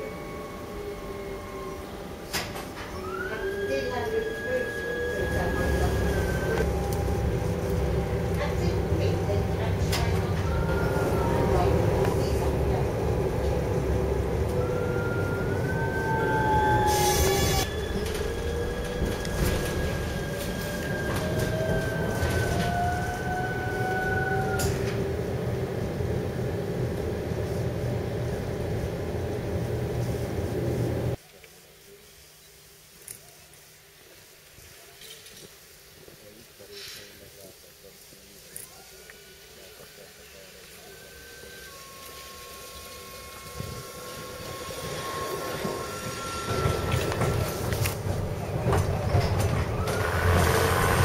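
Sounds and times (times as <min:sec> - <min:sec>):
tram wheels rumbling: 0:00.0 - 0:31.2, 0:37.4 - 0:51.0
electric motor whine: 0:40.8 - 0:48.0.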